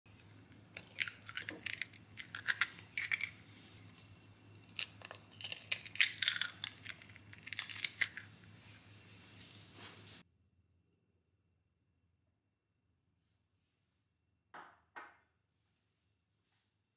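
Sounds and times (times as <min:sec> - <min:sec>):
eggshells cracking: 0:00.1 - 0:08.5.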